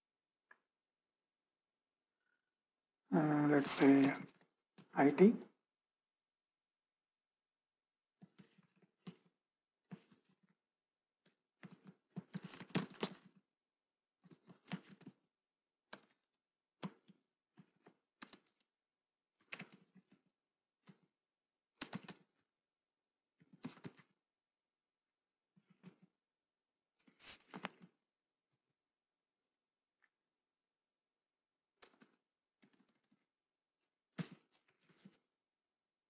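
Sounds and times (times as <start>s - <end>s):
computer keyboard typing: 31.8s - 33.2s.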